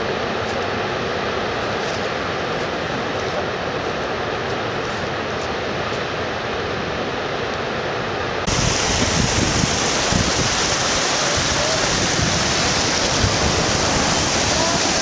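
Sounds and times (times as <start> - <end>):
rushing water: 0.0 - 15.0
waterfall rushing: 7.1 - 15.0.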